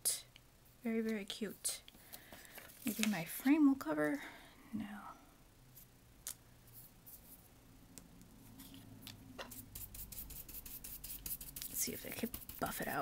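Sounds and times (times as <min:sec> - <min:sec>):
rubbing strokes on paper: 0:09.5 - 0:13.0.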